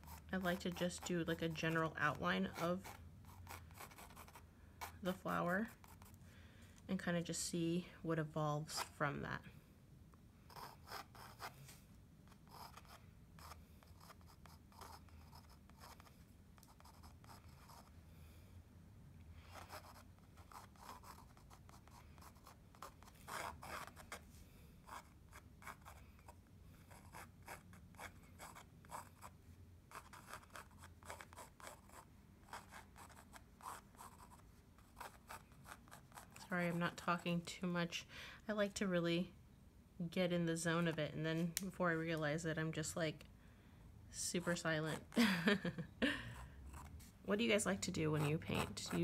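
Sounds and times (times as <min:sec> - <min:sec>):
pencil sketching on canvas: 0:00.0 - 0:06.2, 0:10.5 - 0:11.7, 0:12.3 - 0:17.9, 0:19.5 - 0:24.2, 0:24.8 - 0:37.3, 0:46.7 - 0:49.0.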